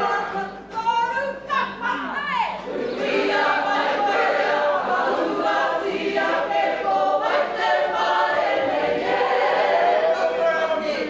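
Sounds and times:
group singing unaccompanied: 0.0 - 0.8, 2.6 - 11.0.

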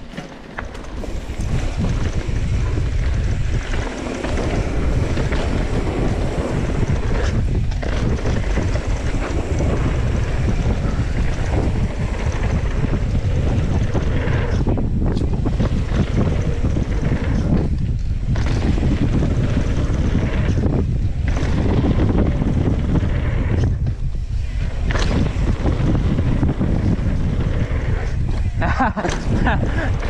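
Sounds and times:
tyre rumble on dirt: 0.0 - 23.8
bike rattling: 0.0 - 30.0
wind buffeting microphone: 0.0 - 30.0.

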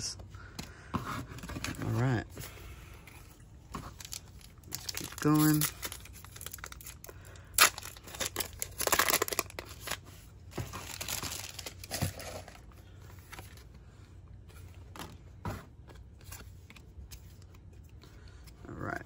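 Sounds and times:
cards rustling and tapping: 3.0 - 7.0, 14.5 - 18.6
foil wrapper crinkling and tearing: 3.8 - 12.6.

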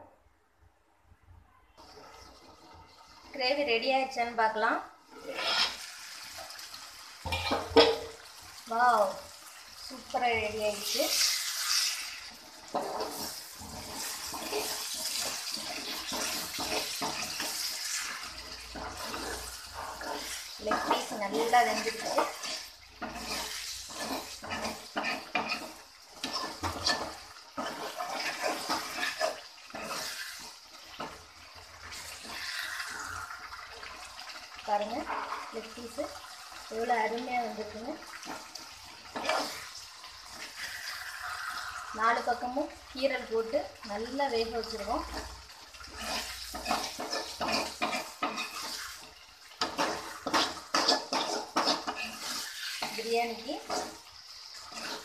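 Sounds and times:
metal skimmer scraping a pot: 5.1 - 5.9
ladle stirring thick gravy: 11.1 - 36.7, 44.7 - 55.0.

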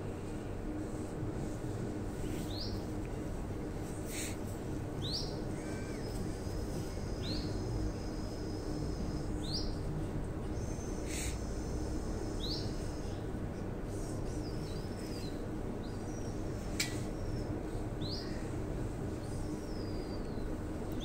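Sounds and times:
steady low hum: 0.0 - 21.0.

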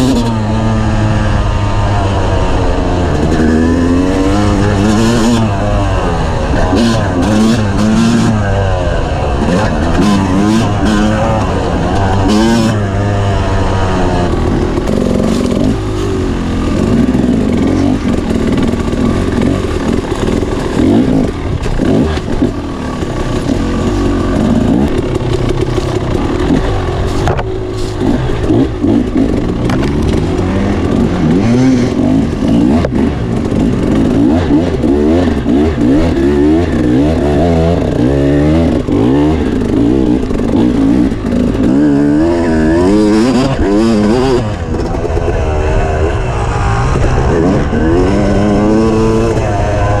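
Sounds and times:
dirt bike engine revving: 0.0 - 50.0.

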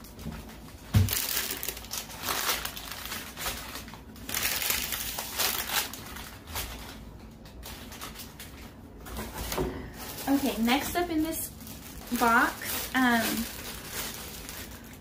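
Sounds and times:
artificial flower stems rustling: 0.0 - 15.0.

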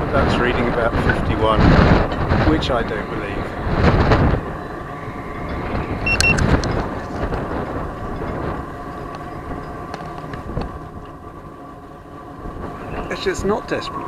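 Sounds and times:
wind buffeting microphone: 0.0 - 14.0
short high beep: 6.0 - 6.4.

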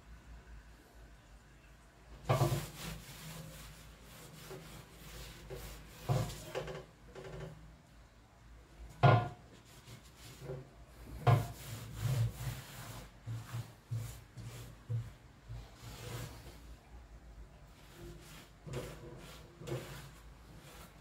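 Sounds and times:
cloth scrubbing steel plate: 2.3 - 6.5, 9.6 - 16.6, 17.7 - 21.0.

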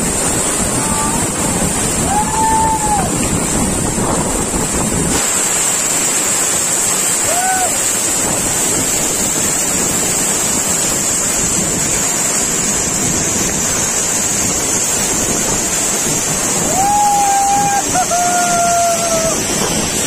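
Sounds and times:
waterfall pouring onto rocks: 0.0 - 20.0.

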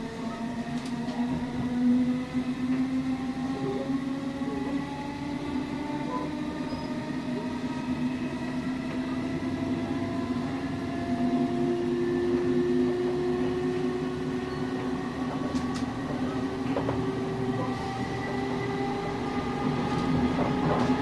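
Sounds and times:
train running rumble: 0.0 - 21.0
whining train motors: 0.0 - 21.0.

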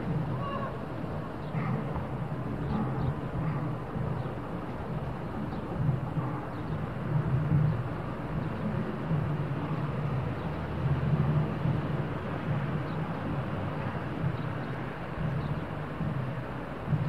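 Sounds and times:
faint wash of noise: 0.0 - 17.0
truck engine low drone: 7.0 - 17.0.

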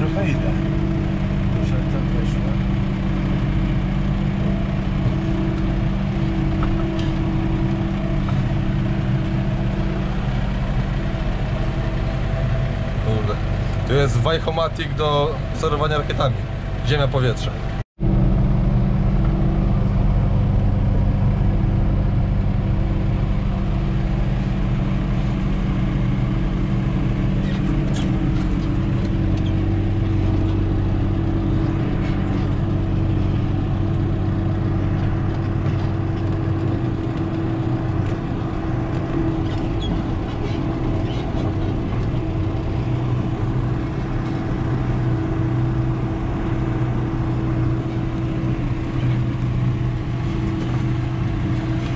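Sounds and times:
tractor engine running: 0.0 - 51.9.

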